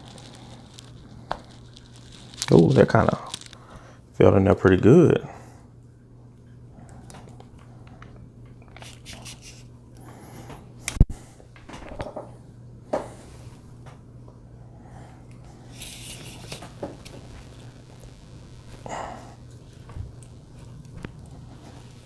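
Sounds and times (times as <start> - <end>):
plastic handling rustles: 0.0 - 3.6
faint steady hum: 0.0 - 22.0.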